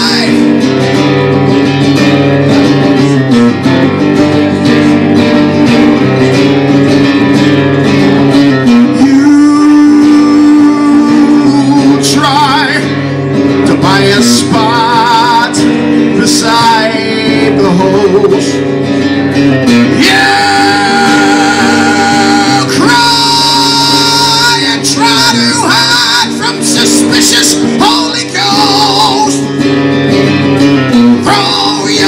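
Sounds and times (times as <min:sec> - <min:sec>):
man singing: 0:00.0 - 0:00.9, 0:08.4 - 0:18.8, 0:19.6 - 0:29.6, 0:30.8 - 0:32.0
guitar playing: 0:00.0 - 0:32.0.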